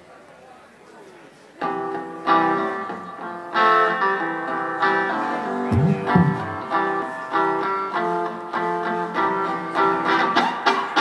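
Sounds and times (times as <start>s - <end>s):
guitar strumming chords: 3.6s - 10.0s.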